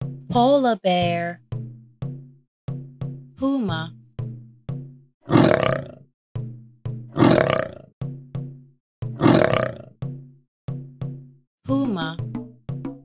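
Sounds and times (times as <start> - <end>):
plucked background music: 0.0 - 5.0, 6.4 - 13.0
puma snarling: 5.2 - 6.0, 7.1 - 7.9, 9.2 - 9.9.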